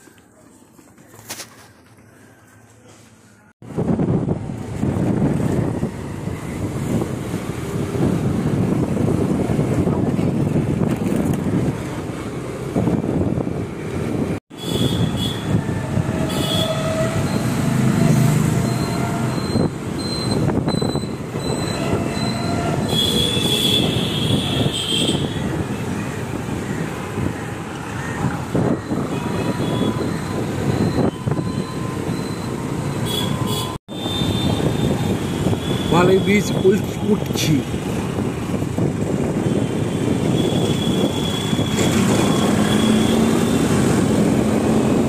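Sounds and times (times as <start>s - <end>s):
wind on microphone: 3.6s - 32.7s, 33.3s - 45.0s
motor scooter rumble: 4.0s - 14.4s.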